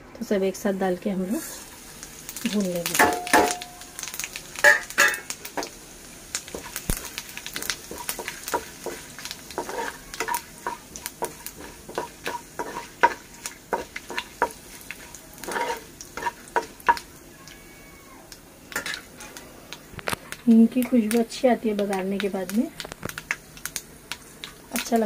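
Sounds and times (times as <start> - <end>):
hot oil sizzling: 0.6 - 25.0
spices crackling in oil: 1.1 - 25.0
metal spoon stirring pan: 2.8 - 5.7, 6.5 - 17.1, 18.7 - 23.4.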